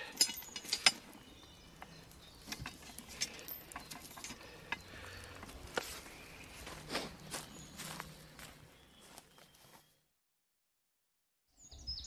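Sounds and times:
footsteps on dry leaves: 0:05.0 - 0:09.9.

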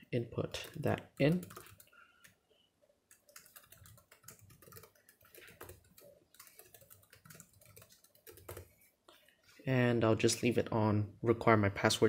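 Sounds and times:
laptop keyboard typing: 0:00.5 - 0:02.4, 0:03.1 - 0:08.8.

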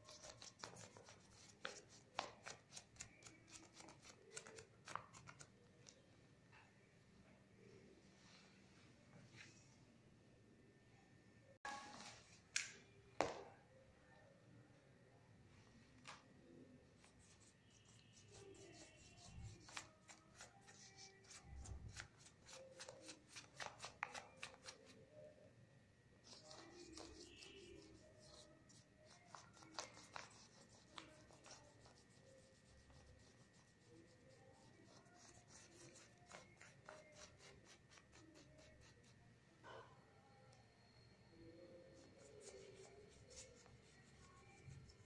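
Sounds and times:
paintbrush strokes on paper: 0:26.2 - 0:39.2.

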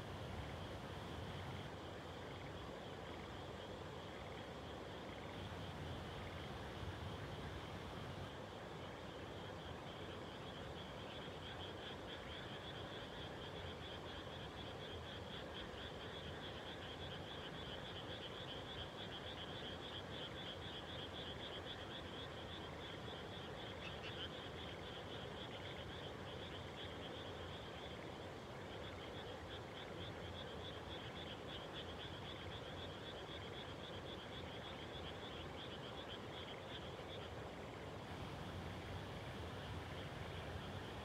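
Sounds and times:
frogs calling: 0:09.0 - 0:41.0.

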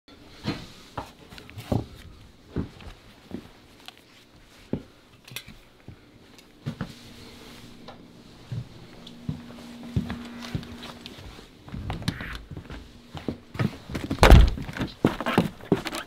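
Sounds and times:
footsteps of boots on wooden floor: 0:00.4 - 0:03.6, 0:08.4 - 0:16.0.

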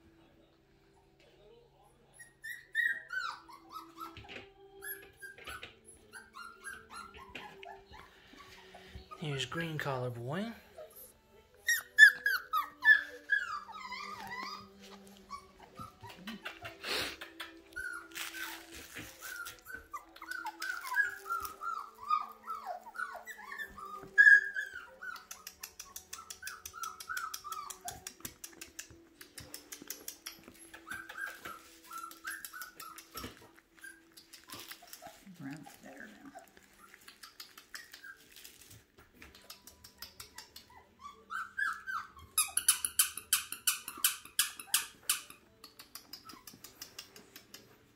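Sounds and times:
puppies whimpering and crying: 0:02.1 - 0:47.9
light scratching and clicking: 0:25.0 - 0:40.8, 0:42.5 - 0:47.9.

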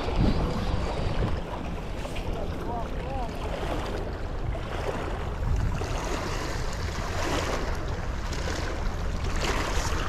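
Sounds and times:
wind noise on microphone: 0:00.0 - 0:02.4, 0:04.4 - 0:07.7
waves lapping against rocks: 0:00.0 - 0:10.0.

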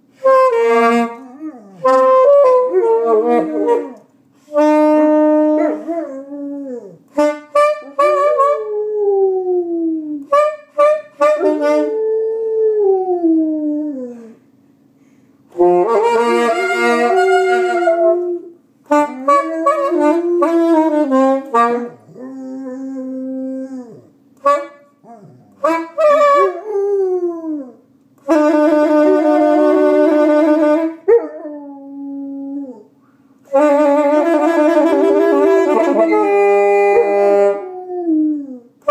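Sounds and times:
saxophone long notes: 0:00.1 - 0:09.4, 0:10.1 - 0:12.3, 0:15.5 - 0:27.6, 0:28.2 - 0:32.8, 0:33.5 - 0:38.9
dog howling: 0:34.8 - 0:38.7.

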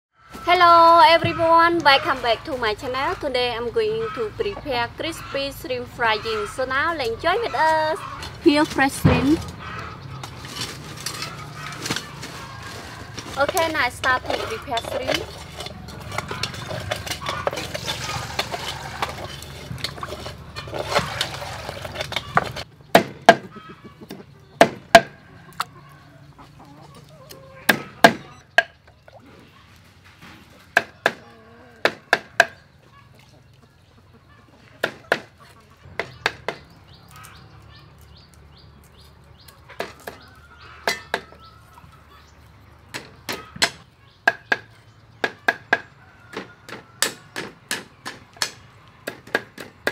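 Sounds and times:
chickens clucking: 0:00.2 - 0:49.9
clinks and handling sounds: 0:10.3 - 0:22.7.

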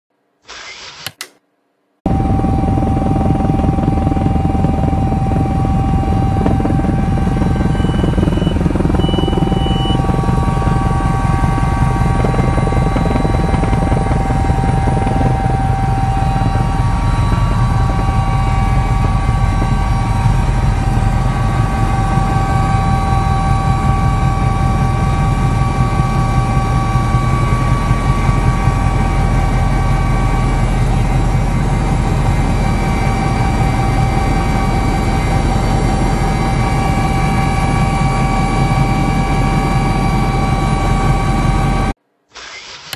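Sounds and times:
constant whining tones: 0:02.1 - 0:41.9
helicopter rotor and engines drone: 0:02.1 - 0:42.9.

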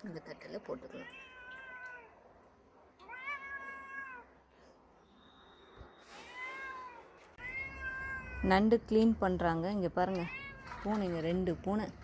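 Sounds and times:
cat meowing: 0:01.0 - 0:02.1, 0:03.0 - 0:04.3, 0:06.1 - 0:08.5.

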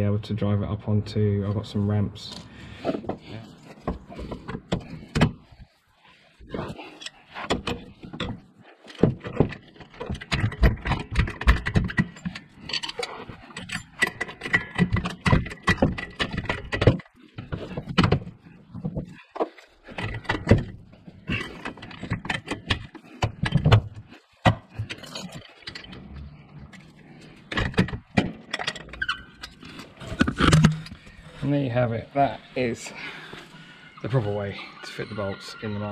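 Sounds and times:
trolley jack clicking and rattling: 0:06.9 - 0:18.3.

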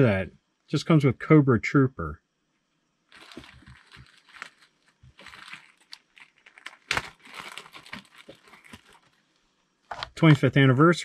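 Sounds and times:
plastic bags crinkling: 0:03.1 - 0:09.4.

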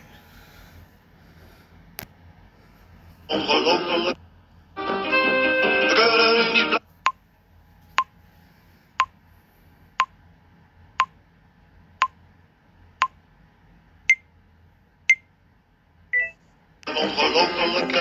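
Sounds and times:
countdown timer beeping: 0:16.2 - 0:16.4.

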